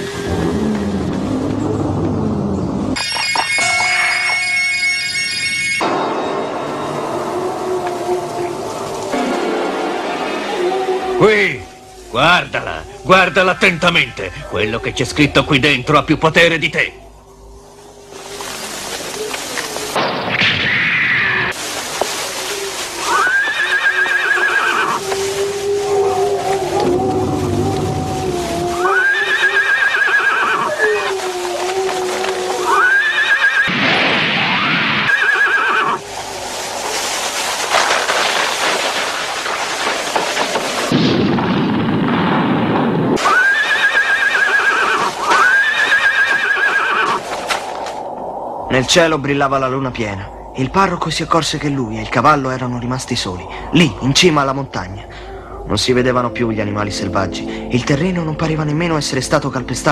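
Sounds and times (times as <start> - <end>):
hissing rush of noise: 6.6 - 41.0, 42.6 - 56.0
horse neighing: 23.1 - 25.0, 28.4 - 31.1, 32.6 - 33.8, 34.6 - 36.0, 43.2 - 47.2
low rumbling crash: 36.3 - 43.2.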